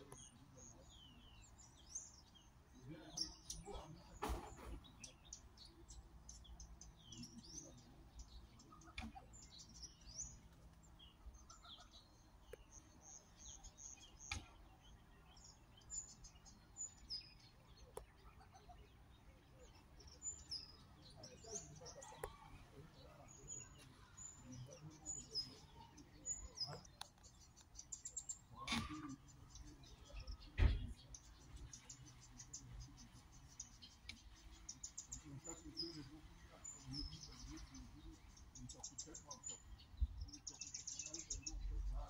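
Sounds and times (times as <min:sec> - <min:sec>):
faint birds chirping: 0:00.0 - 0:42.0.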